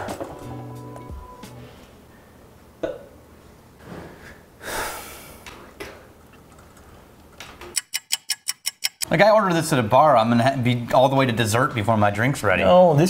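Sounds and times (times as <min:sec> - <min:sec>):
man breathing loudly and sighing: 0:04.6 - 0:05.6.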